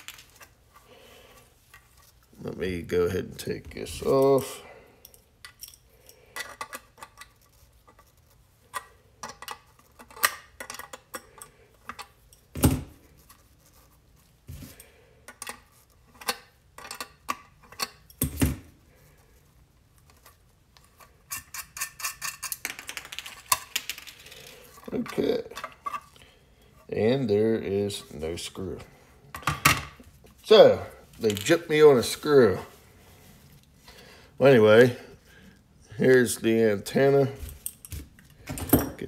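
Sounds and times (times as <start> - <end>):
hand tool clicks and scrapes: 20.0 - 22.6.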